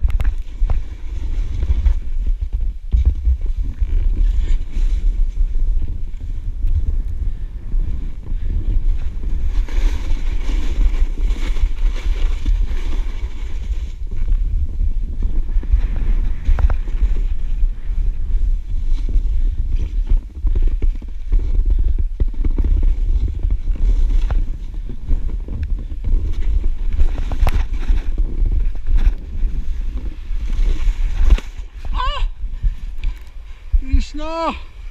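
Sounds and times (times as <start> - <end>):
wind rumbling on microphone: 0.0 - 34.9
skis sliding through snow: 0.2 - 6.5, 7.9 - 34.9.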